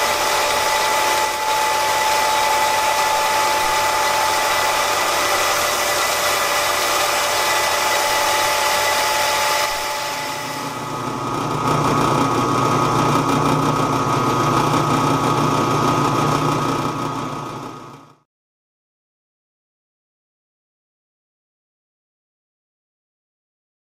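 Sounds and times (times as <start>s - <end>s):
belt grinder running: 0.0s - 18.0s
drill press boring metal: 0.0s - 18.1s.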